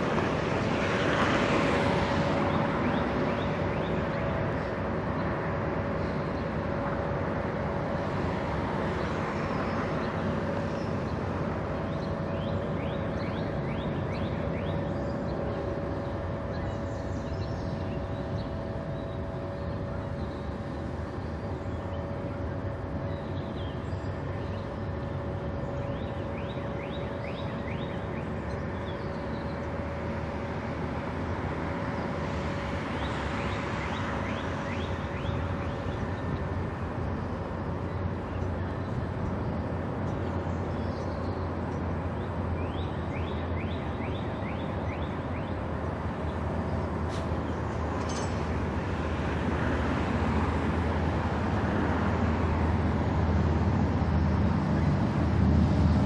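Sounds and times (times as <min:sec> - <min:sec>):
ship machinery hum: 0:00.0 - 0:56.0.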